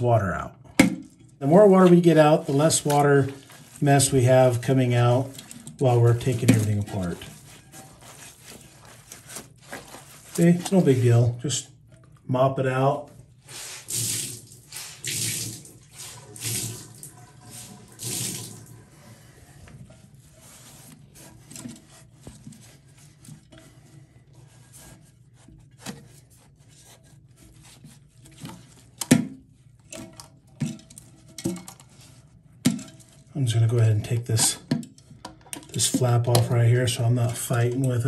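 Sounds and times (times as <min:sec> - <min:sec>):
water sloshing in toilet tank: 0:00.0 - 0:38.0
water dripping: 0:13.9 - 0:18.8.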